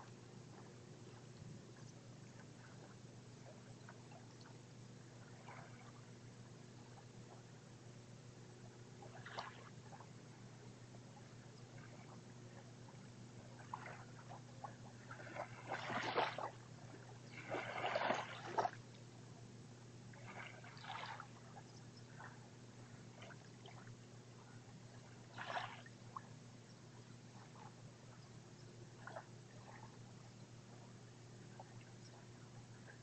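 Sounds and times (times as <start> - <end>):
faint steady hum: 0.0 - 33.0
small waves lapping on pebbly sand: 13.6 - 18.8, 20.1 - 21.4, 25.3 - 25.9.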